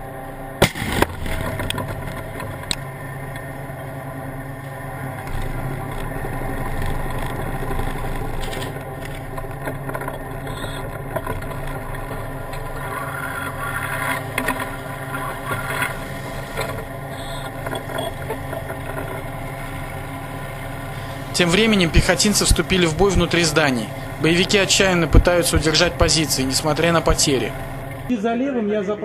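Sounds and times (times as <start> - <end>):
tank engine running: 0.0 - 28.1.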